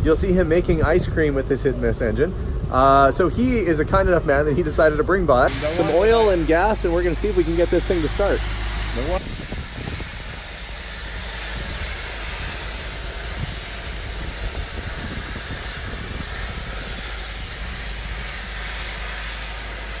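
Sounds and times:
low rumble: 0:00.0 - 0:19.4
steady hiss: 0:04.6 - 0:20.0.

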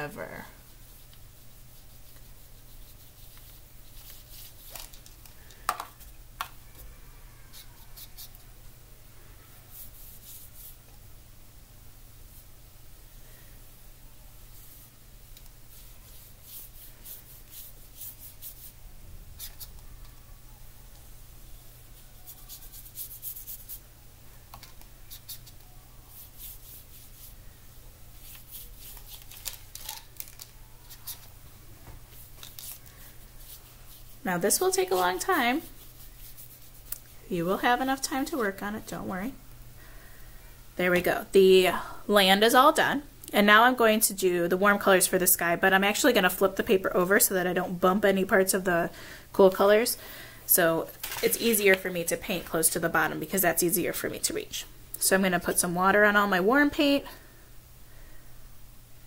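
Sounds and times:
brush dabbing on paper: 0:00.0 - 0:04.8, 0:09.7 - 0:10.9, 0:14.5 - 0:18.8, 0:21.7 - 0:23.9, 0:25.0 - 0:27.4, 0:28.2 - 0:29.3, 0:32.1 - 0:38.8.

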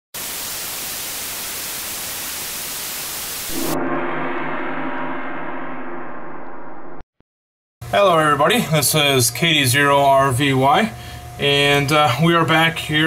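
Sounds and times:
gong-like ringing tones: 0:03.5 - 0:06.8.

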